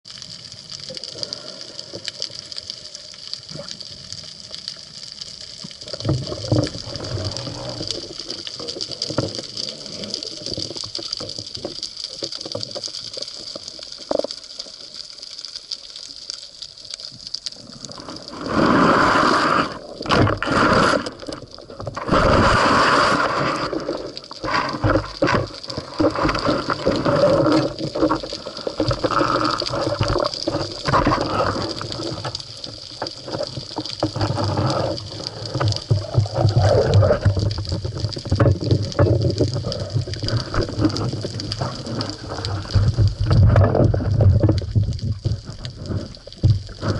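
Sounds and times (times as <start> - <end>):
underwater clicks: 4.5 - 46.9
rushing water surges: 17.8 - 46.9.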